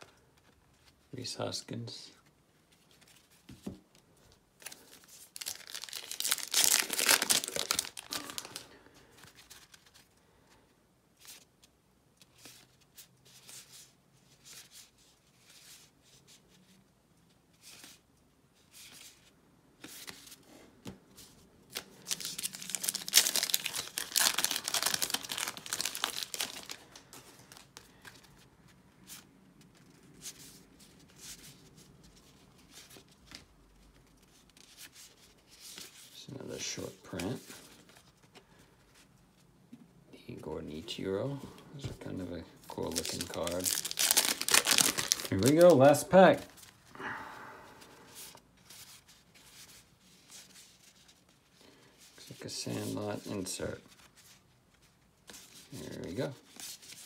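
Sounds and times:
cards rustling: 2.5 - 10.2, 18.6 - 39.5, 40.8 - 46.9
plastic wrapper tearing and crinkling: 4.6 - 8.7, 21.7 - 27.8, 42.7 - 46.8.

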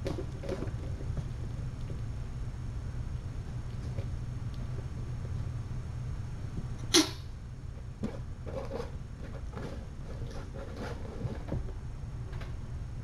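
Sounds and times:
kittens tapping and rustling: 0.0 - 2.1, 7.8 - 12.6
low hum: 0.0 - 13.0.

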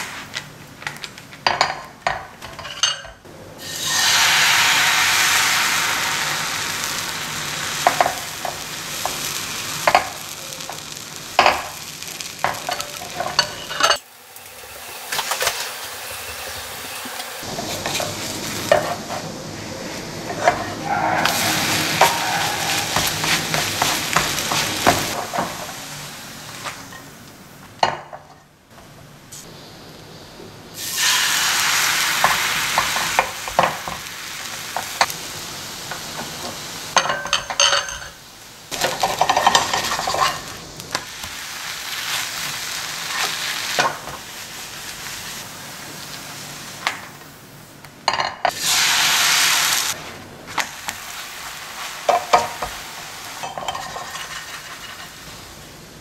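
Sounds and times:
batter sizzling in frying pan: 0.0 - 2.5, 3.6 - 28.2, 30.7 - 56.0
pan and utensils clinking: 0.8 - 3.2, 7.6 - 19.3, 20.3 - 25.9, 32.2 - 34.1, 35.9 - 41.1, 43.0 - 44.3, 48.1 - 48.9, 51.8 - 55.4.

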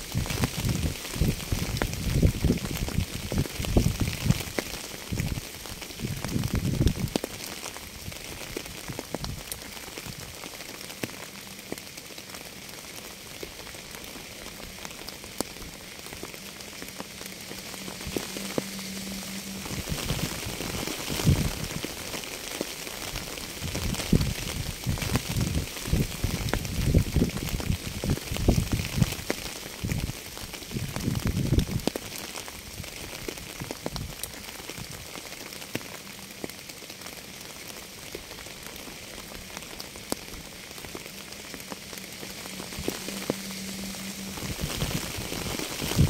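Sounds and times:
steady rain hiss: 0.0 - 46.0
low rumbling: 14.4 - 29.2, 39.1 - 46.0.

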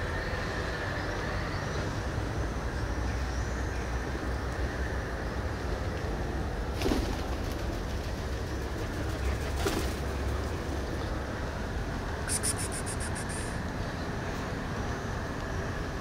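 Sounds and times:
distant road traffic rumble: 0.0 - 16.0
high thin chirps: 12.3 - 13.6.

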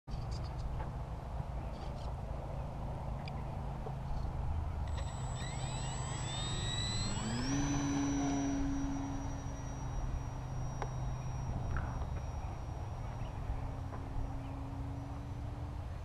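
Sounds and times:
model plane motor whine: 4.7 - 16.0.

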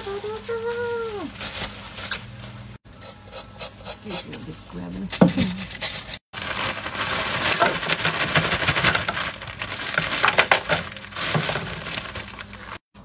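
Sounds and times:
plastic bag crinkling: 0.0 - 2.8, 5.5 - 12.8.

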